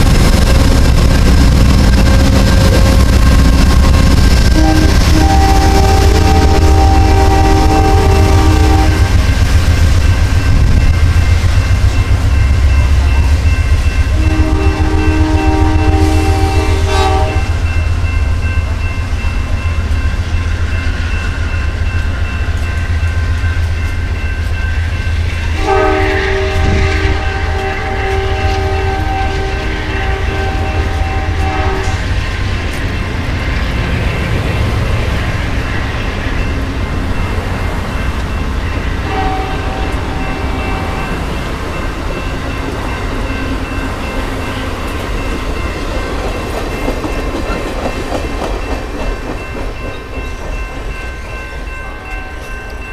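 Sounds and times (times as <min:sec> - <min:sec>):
passenger train rumbling: 0:00.0 - 0:52.9
train air horn chord: 0:02.1 - 0:09.3, 0:14.1 - 0:17.8, 0:25.5 - 0:32.1, 0:39.0 - 0:41.2.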